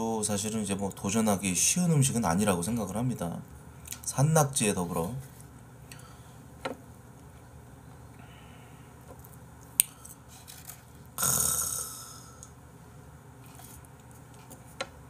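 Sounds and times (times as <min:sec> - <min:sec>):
breathy mouth noise: 0:11.2 - 0:12.6.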